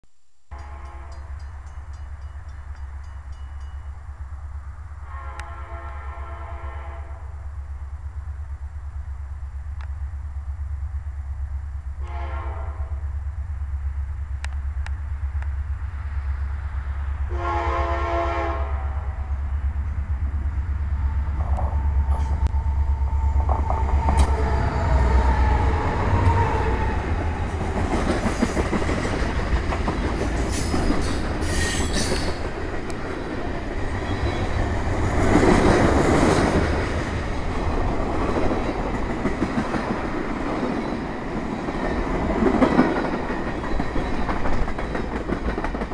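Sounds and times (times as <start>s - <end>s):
locomotive horn: 0.5s - 1.4s, 5.0s - 7.4s, 12.0s - 13.0s, 17.3s - 19.4s, 21.4s - 26.8s
train wheels clattering over rail joints: 27.2s - 37.1s, 38.2s - 45.9s.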